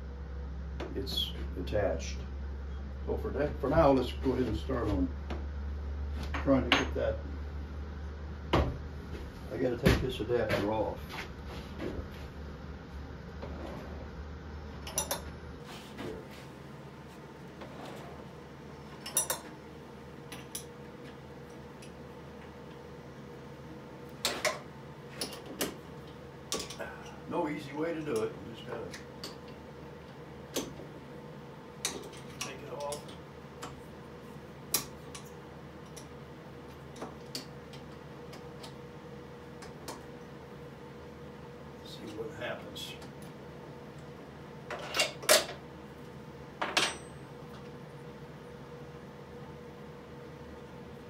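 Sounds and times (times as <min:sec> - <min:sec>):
low hum: 0:00.0 - 0:24.1
faint hum: 0:00.0 - 0:51.0.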